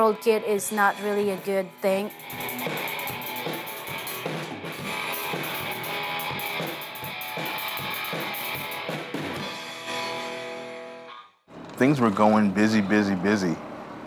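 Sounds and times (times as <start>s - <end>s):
drum kit beat: 0.0s - 10.4s
guitar: 0.0s - 13.6s.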